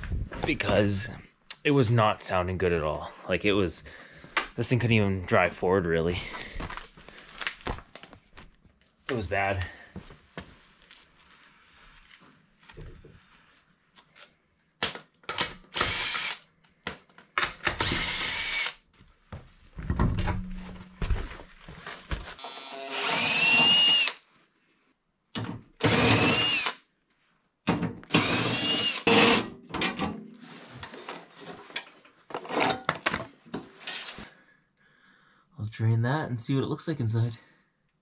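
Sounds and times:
power tool whining: 17.8s - 18.8s, 22.4s - 24.2s, 25.8s - 26.8s, 28.1s - 29.5s.

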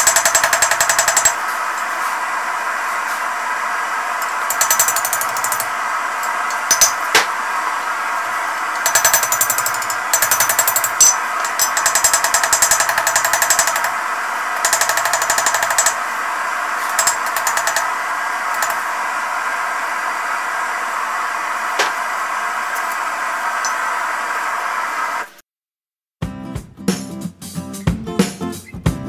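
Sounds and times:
steady rushing noise: 0.0s - 25.4s
hammer ringing on anvil: 6.5s - 7.3s, 8.8s - 13.9s.

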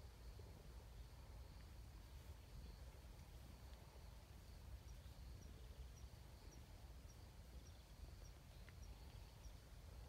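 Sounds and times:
faint high chirp: 4.8s - 9.8s.

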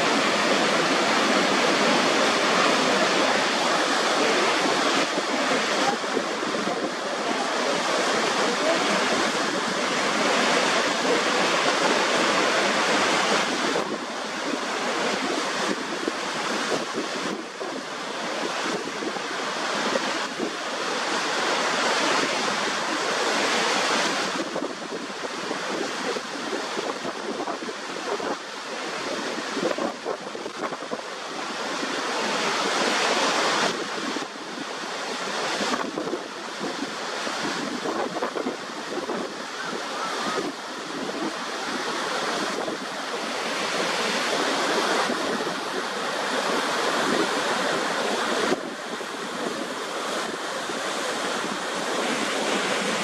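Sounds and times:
waterfall crashing: 0.0s - 53.0s
wind buffeting microphone: 23.9s - 53.0s.

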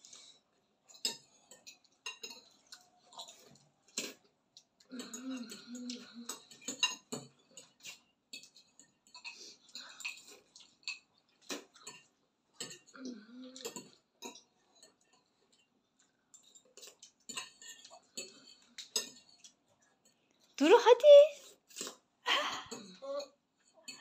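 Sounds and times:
forks clinking against bowls: 0.9s - 4.2s, 4.9s - 12.9s, 13.6s - 15.7s, 16.3s - 20.2s.

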